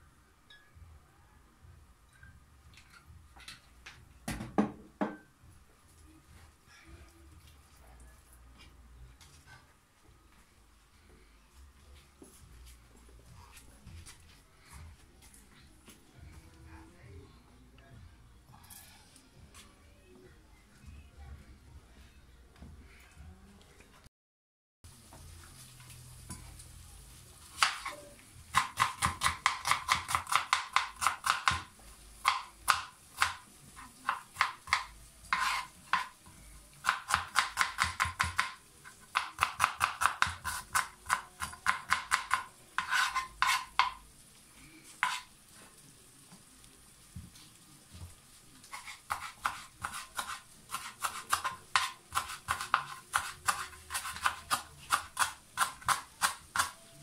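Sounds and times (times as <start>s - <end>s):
knife chopping on plastic board: 28.5s - 33.4s, 36.8s - 44.0s, 48.8s - 56.8s.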